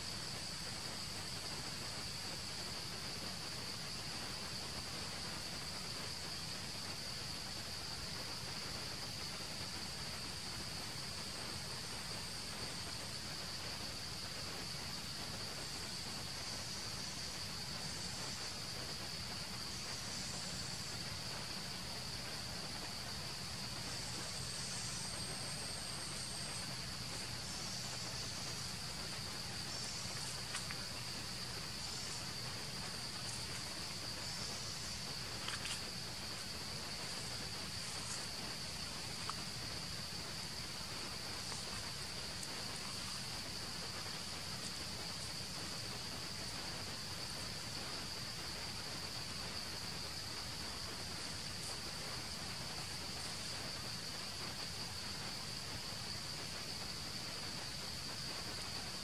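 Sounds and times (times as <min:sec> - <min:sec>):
insects droning: 0:00.0 - 0:59.0
faint clicks: 0:32.9 - 0:39.4.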